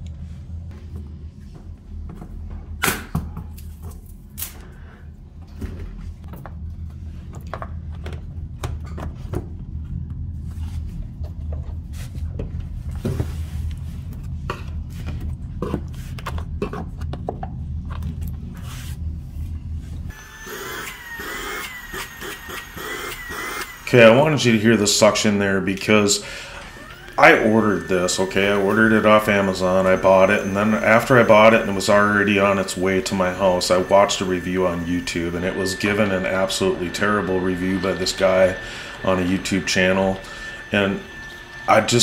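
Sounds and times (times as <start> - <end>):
handheld vacuum humming: 20.1 - 42.0.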